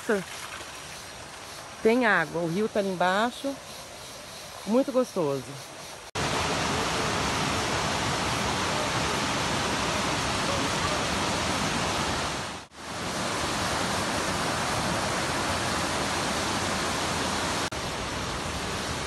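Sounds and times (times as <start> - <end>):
water rushing over rocks: 6.2 - 19.0.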